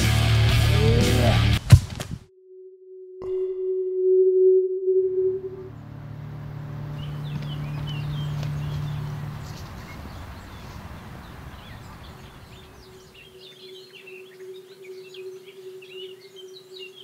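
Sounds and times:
steady higher tone: 2.3 - 7.7, 12.9 - 17.0
low steady drone: 3.2 - 9.4, 12.8 - 17.0
small birds singing: 6.5 - 17.0.

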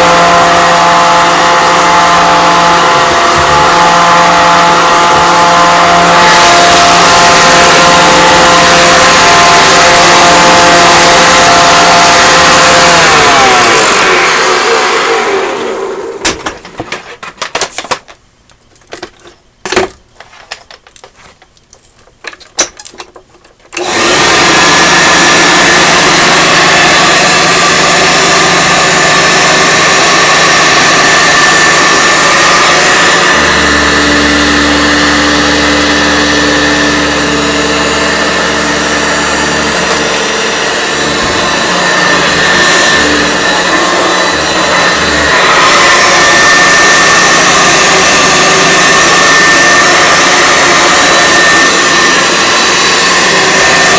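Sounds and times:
deeper hum: 0.0 - 9.4, 33.1 - 46.3
vacuum cleaner winding down: 0.0 - 16.6, 23.7 - 53.9
upright vacuum cleaner running: 0.0 - 18.0, 22.2 - 53.9
clicks and knocks of handling: 16.2 - 23.8.

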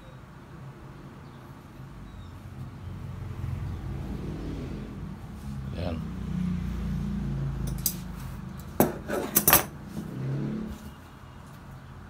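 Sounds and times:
metal shears clinking on table: 8.8 - 9.7.

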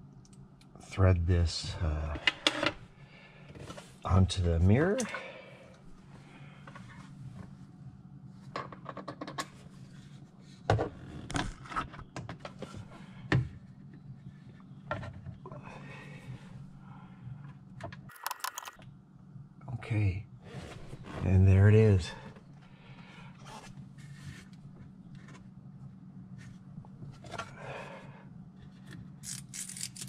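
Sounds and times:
steady low hum: 0.0 - 30.0
plastic and metal parts clicking: 18.1 - 18.8.

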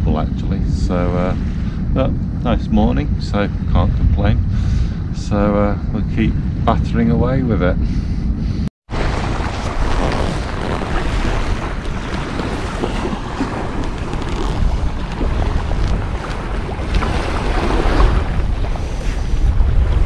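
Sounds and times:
wind buffeting microphone: 0.0 - 20.0
small waves lapping: 8.9 - 20.0.

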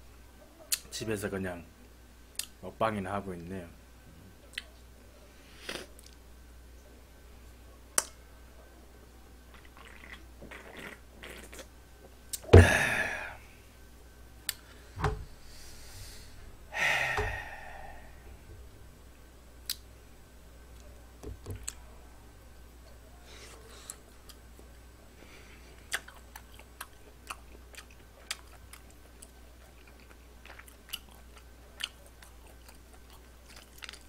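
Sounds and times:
person chewing: 9.5 - 11.7, 25.8 - 34.0
thump with rush of noise: 12.6 - 12.8, 15.0 - 15.3, 17.1 - 17.4.

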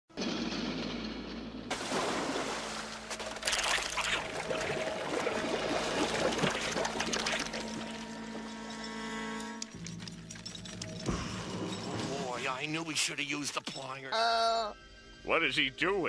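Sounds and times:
liquid pouring and splashing: 1.7 - 8.1.

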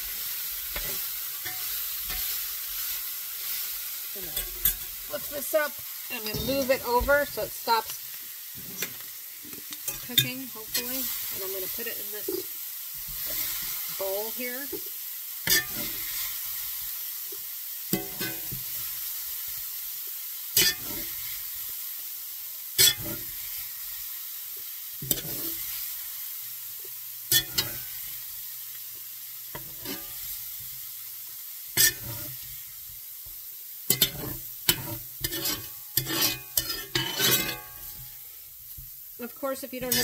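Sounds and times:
meat sizzling in a frying pan: 0.0 - 40.0
utensil scraping a pan: 0.6 - 14.8, 15.4 - 16.4, 20.6 - 21.2, 22.8 - 23.4, 25.0 - 25.8, 27.3 - 28.0, 29.5 - 30.4, 31.8 - 32.7, 33.9 - 40.0.

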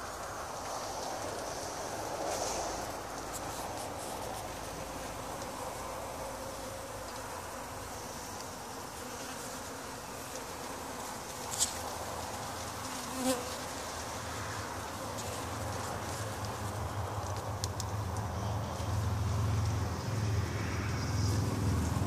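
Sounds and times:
bees buzzing: 0.0 - 17.3.

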